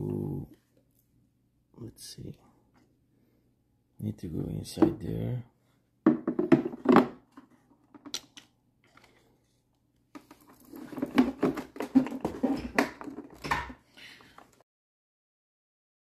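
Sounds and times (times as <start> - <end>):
hard plastic knocking and clicking: 6.1 - 8.3.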